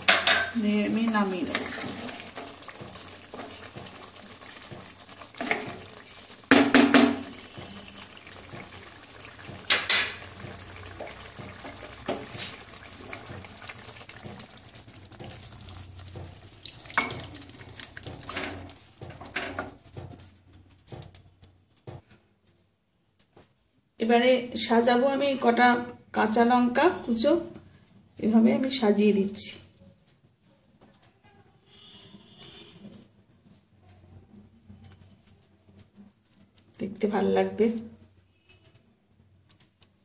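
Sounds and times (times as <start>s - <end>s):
curry sizzling and bubbling: 0.0s - 21.3s
wooden spatula scraping a pan: 0.4s - 6.4s, 7.4s - 13.3s.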